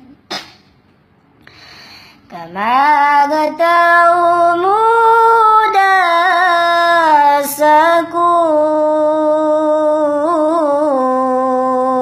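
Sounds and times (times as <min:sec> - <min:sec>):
quick breath: 0:01.4 - 0:02.3
person singing slow melody: 0:02.3 - 0:12.0.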